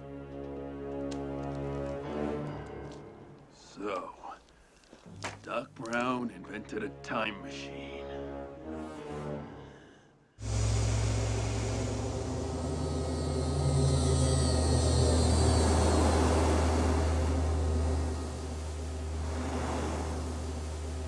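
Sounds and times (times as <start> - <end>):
deep steady hum: 10.4 - 21.0
rushing whoosh: 10.4 - 21.0.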